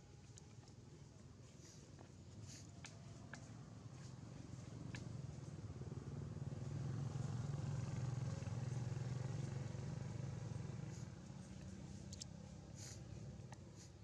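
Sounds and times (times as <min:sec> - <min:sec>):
passing vehicle engine rumble: 0:03.5 - 0:14.0.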